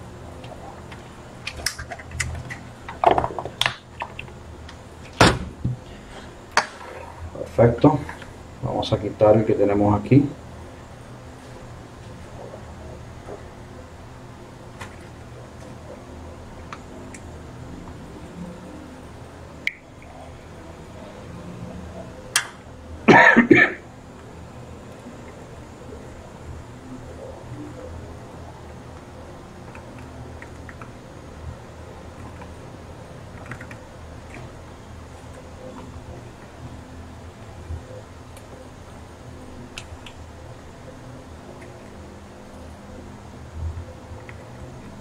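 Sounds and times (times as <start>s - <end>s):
person coughing: 23.1s - 23.8s.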